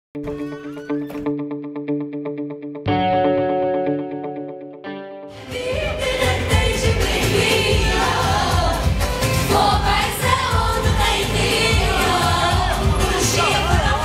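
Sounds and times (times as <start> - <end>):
voices singing along: 5.3 - 14.0
amplified party music with beat: 5.4 - 14.0.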